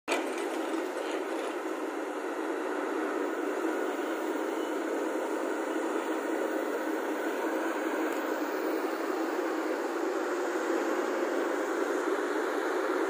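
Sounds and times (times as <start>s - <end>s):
excavator running: 0.1s - 13.0s.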